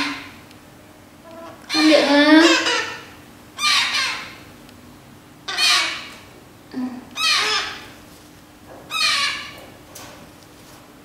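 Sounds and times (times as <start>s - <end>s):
parakeet squawking: 1.4s - 4.4s, 5.5s - 6.2s, 7.2s - 7.9s, 8.9s - 9.6s.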